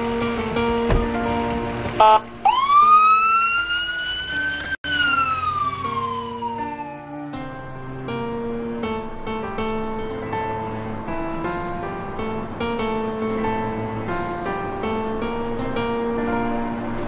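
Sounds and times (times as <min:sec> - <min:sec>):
soft background music: 0:00.0 - 0:17.0
ambulance siren wailing: 0:02.0 - 0:07.9.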